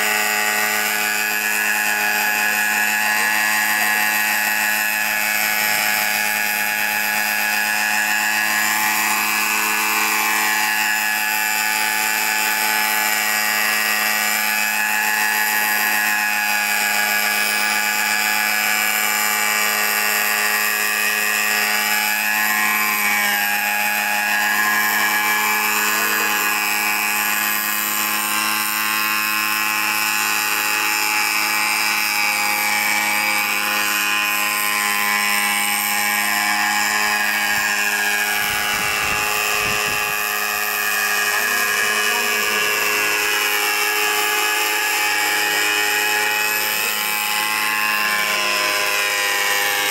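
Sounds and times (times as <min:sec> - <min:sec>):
model helicopter engine whining: 0:00.0 - 0:49.9.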